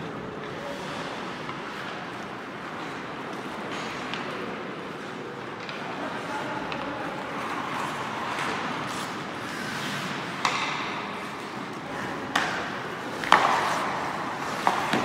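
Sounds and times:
hockey stick and puck clacks: 0:00.4 - 0:15.0
skates scraping on ice: 0:05.0 - 0:15.0.

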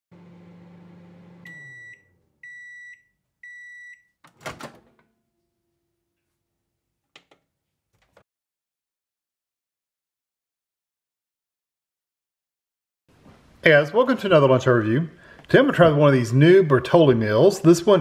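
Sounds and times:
microwave oven humming: 0:00.1 - 0:02.7
microwave beeps: 0:00.6 - 0:04.2.

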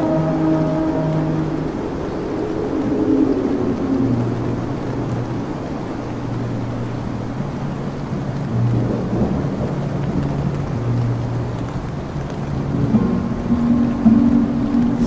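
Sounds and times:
low held musical note: 0:00.0 - 0:05.5, 0:12.6 - 0:15.0
low rolling thunder: 0:00.0 - 0:15.0
steady rain: 0:00.0 - 0:15.0.

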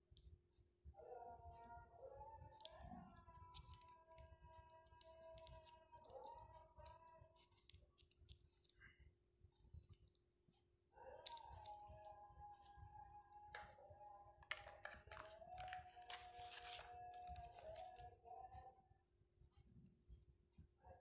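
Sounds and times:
plastic band clicks and taps: 0:13.5 - 0:13.8, 0:14.4 - 0:16.2.

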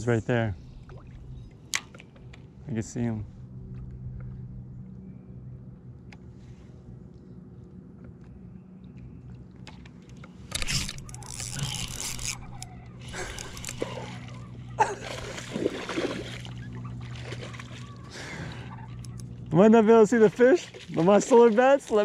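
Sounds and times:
low hum: 0:00.0 - 0:21.0
fish splashing in water: 0:13.2 - 0:19.0.

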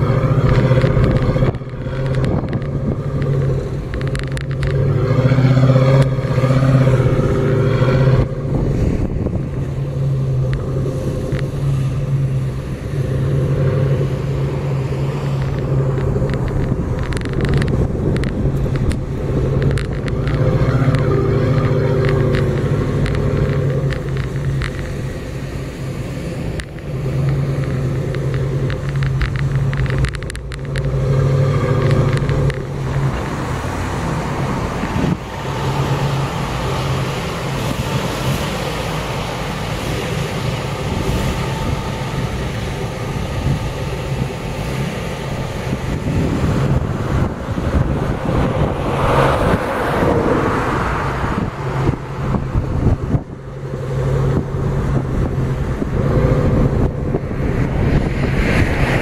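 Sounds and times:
tyre and wind noise: 0:00.0 - 0:59.0
vehicle engine droning: 0:00.0 - 0:59.0.

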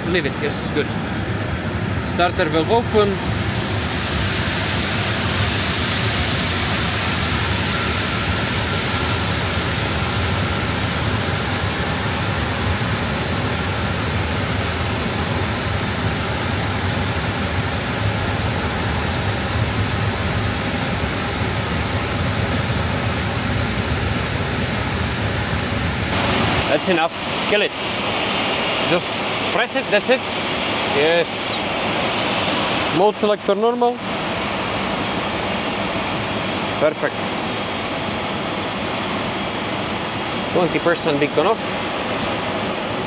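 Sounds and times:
jet engine cranking whine: 0:00.0 - 0:43.0.

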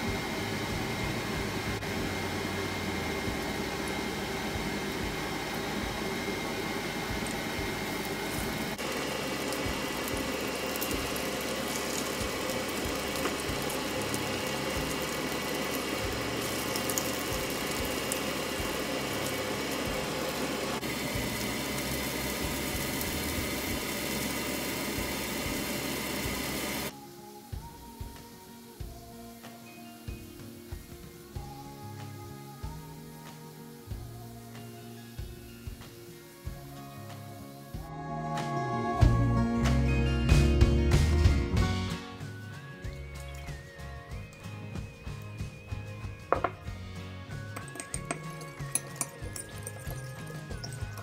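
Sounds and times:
chicken sizzling in oil: 0:00.0 - 0:37.9
mechanical hum: 0:00.0 - 0:40.1.

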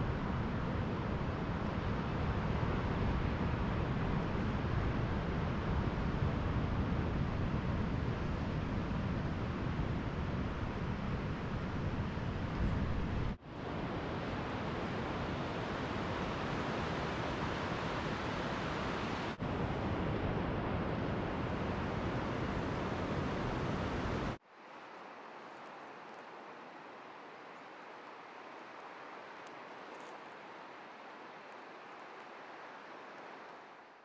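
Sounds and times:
soft outdoor ambience: 0:00.0 - 0:34.0
wind: 0:00.0 - 0:34.0
ocean surf: 0:13.4 - 0:34.0.

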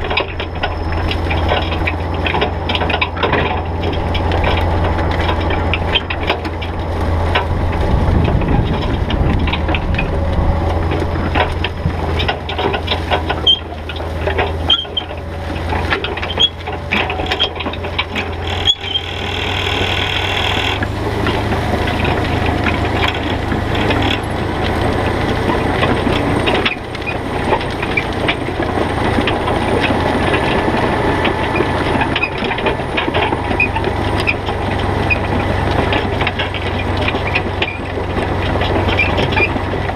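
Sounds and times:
harsh scraping: 0:00.0 - 0:39.6
disc harrow rattling and clattering: 0:00.0 - 0:39.9
tractor diesel engine: 0:00.0 - 0:39.9.

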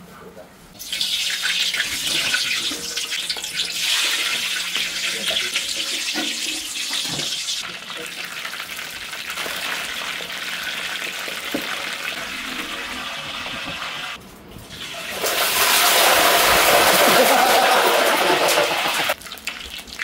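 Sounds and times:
water running from a tap: 0:00.9 - 0:14.1.

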